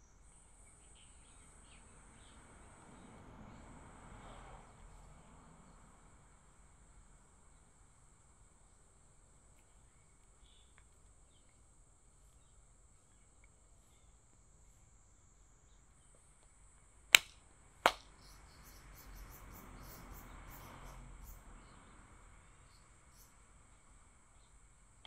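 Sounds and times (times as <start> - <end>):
insects droning: 0.0 - 25.0
sharp handclaps: 17.2 - 18.2.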